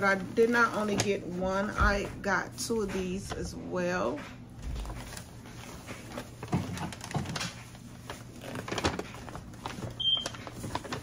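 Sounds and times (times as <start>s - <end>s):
knocks and rustles: 4.2s - 11.0s
plastic bottles being handled: 4.6s - 11.0s.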